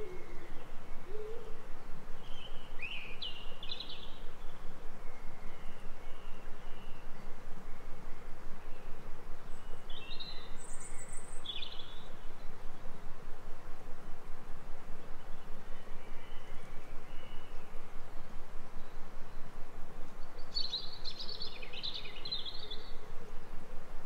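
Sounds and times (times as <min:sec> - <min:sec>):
low hooting bird calls: 0:00.0 - 0:03.0
steady pulsing hiss: 0:00.0 - 0:24.0
small birds chirping: 0:08.7 - 0:12.7, 0:20.2 - 0:23.0.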